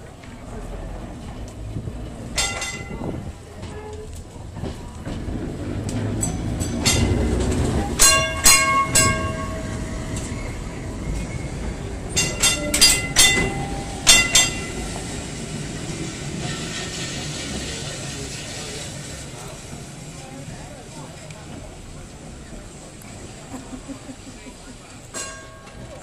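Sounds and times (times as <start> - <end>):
tram wheels rumbling on rails: 0.0 - 26.0
sharp metallic clacks: 5.9 - 10.3, 12.2 - 14.9.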